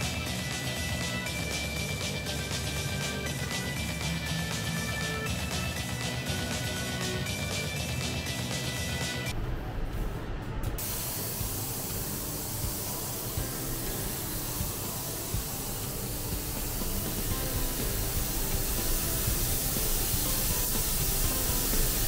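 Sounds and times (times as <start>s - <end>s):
background music: 0.0s - 22.0s
compressed air hissing from blow gun: 10.8s - 22.0s.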